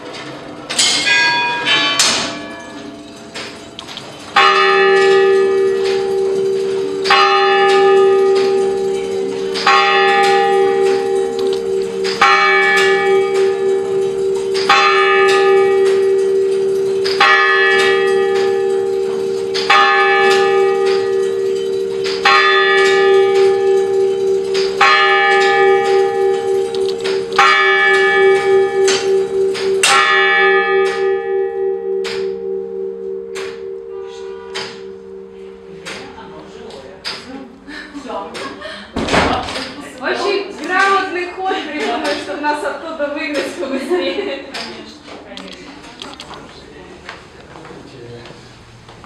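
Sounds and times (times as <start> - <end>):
tower clock bell striking: 0.0 - 37.0.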